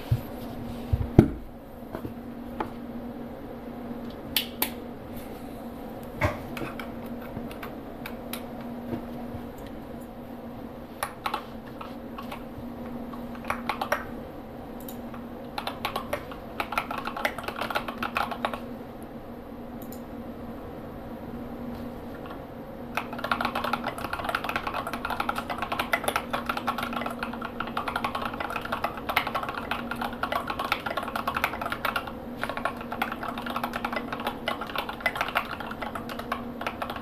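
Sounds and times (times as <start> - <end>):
mechanical keyboard typing: 11.0 - 12.5, 13.3 - 14.1, 14.8 - 18.7, 23.0 - 37.0.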